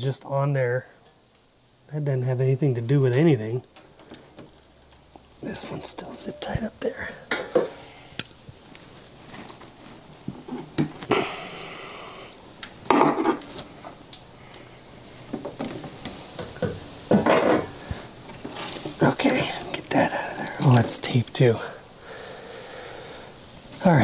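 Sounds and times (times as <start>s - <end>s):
rustling and scraping of wires: 3.0s - 11.2s, 12.2s - 21.7s.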